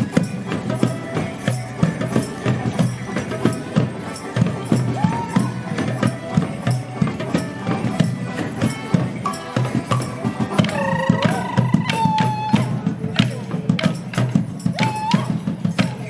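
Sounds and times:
banjo: 0:00.0 - 0:16.0
drums: 0:00.0 - 0:16.0
tambourine: 0:00.0 - 0:16.0.

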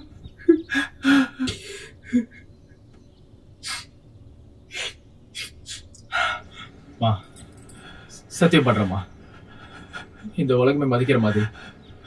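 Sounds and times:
person sobbing: 0:00.0 - 0:02.6
sharp breaths: 0:03.6 - 0:04.0, 0:07.6 - 0:08.3.

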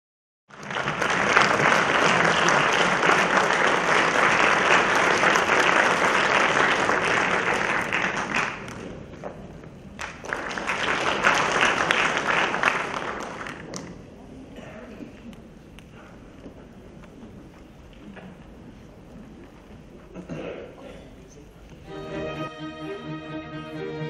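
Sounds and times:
audience applauding: 0:00.5 - 0:09.1, 0:10.0 - 0:14.0.

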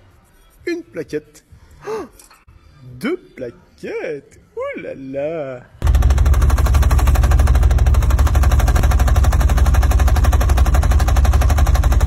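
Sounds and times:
loud fast rattle: 0:05.8 - 0:12.0.

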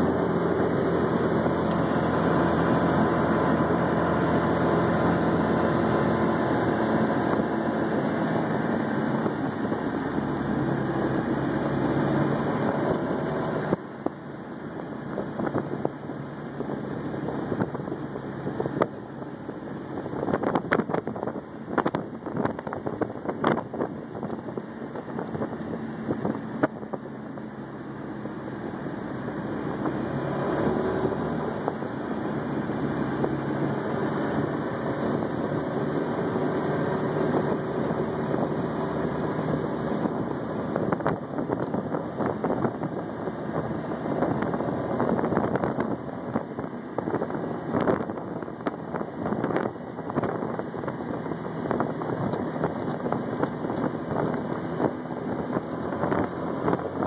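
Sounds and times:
small car engine running: 0:00.0 - 0:57.0
wind buffeting microphone: 0:00.0 - 0:57.0.

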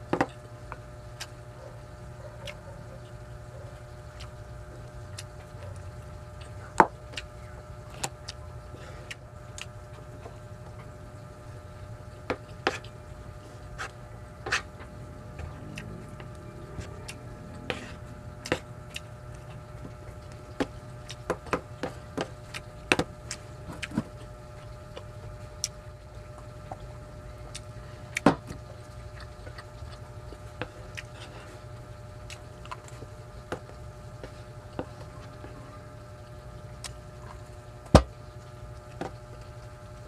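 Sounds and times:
steady background hum: 0:00.0 - 0:40.0
chewing: 0:01.2 - 0:07.3, 0:12.4 - 0:25.8, 0:26.4 - 0:35.8.

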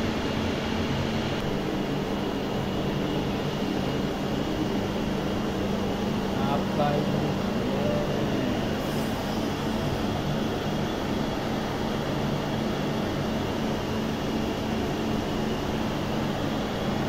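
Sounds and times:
low machinery hum: 0:00.0 - 0:17.0.

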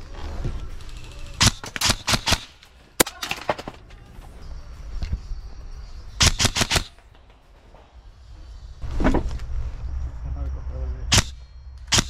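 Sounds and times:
airsoft rifle shots: 0:01.3 - 0:03.8, 0:06.2 - 0:07.2, 0:11.1 - 0:12.0.

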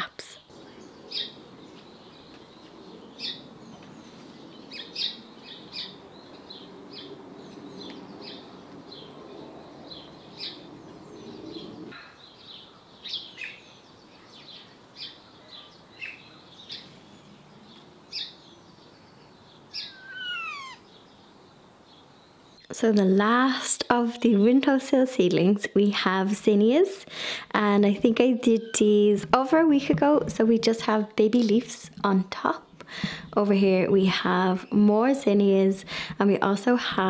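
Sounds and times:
birds chirping and singing: 0:00.4 - 0:22.7
bird call sweeping down: 0:19.7 - 0:20.9.

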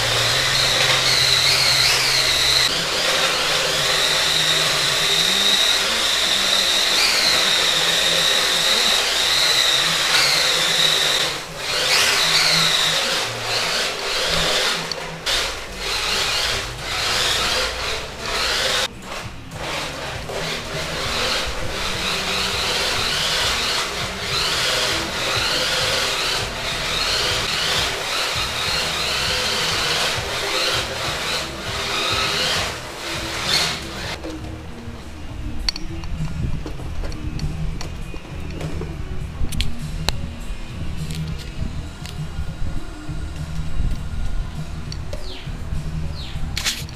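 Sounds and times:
small electric motor whining: 0:00.0 - 0:34.3.

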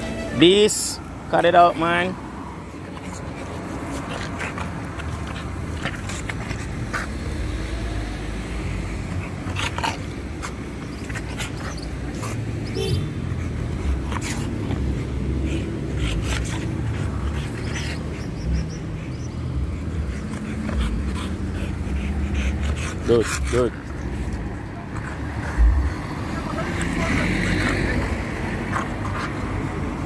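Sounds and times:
low rumble: 0:25.6 - 0:26.2.

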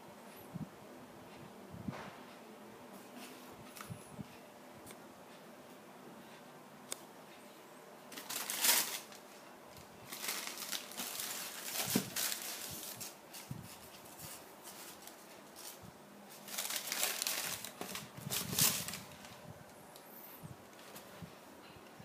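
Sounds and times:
tissue paper crinkling: 0:08.1 - 0:09.3, 0:10.1 - 0:19.4.

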